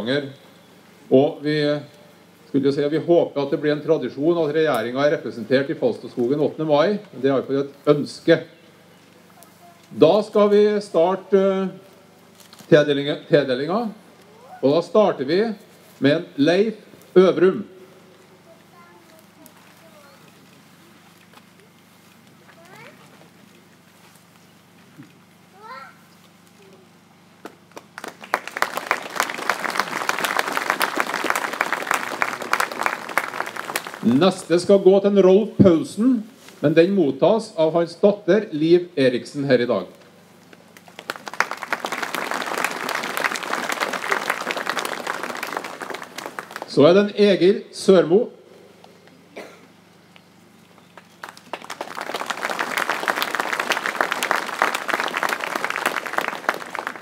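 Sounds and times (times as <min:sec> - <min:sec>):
crowd applauding: 0:27.7 - 0:34.5, 0:40.8 - 0:46.8, 0:51.0 - 0:57.0.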